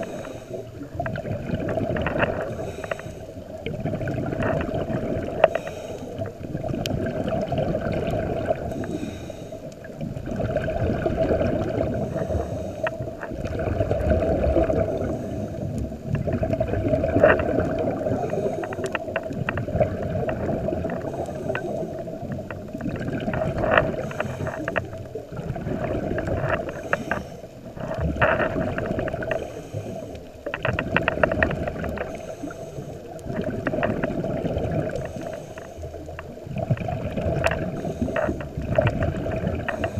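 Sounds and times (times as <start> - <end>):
diver breathing through regulator: 0.0 - 0.9, 2.2 - 3.6, 4.8 - 6.4, 8.4 - 9.9, 11.4 - 13.4, 14.5 - 16.1, 17.1 - 22.5, 23.4 - 25.0, 25.8 - 30.7, 31.9 - 33.9, 34.8 - 36.3, 37.4 - 39.9
bubbling exhaled air underwater: 0.0 - 39.9.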